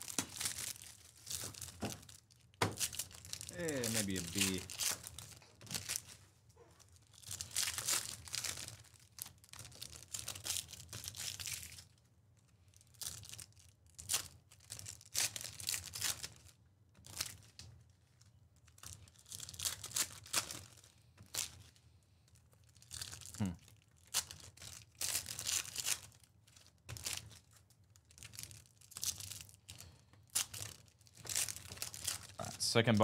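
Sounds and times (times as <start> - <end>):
plastic and foil packaging tearing: 0.0 - 6.2, 6.8 - 12.0, 12.7 - 17.7, 18.6 - 21.8, 22.6 - 33.0.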